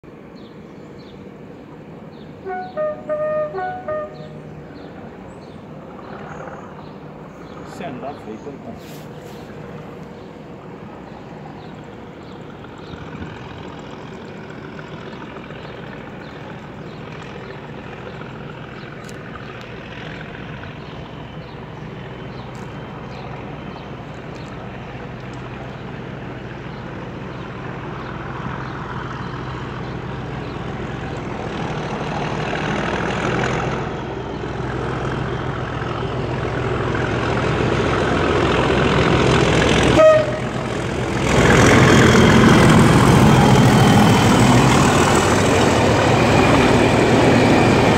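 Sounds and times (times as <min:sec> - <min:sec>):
diesel locomotive engine thrashing: 0:27.5 - 0:47.9.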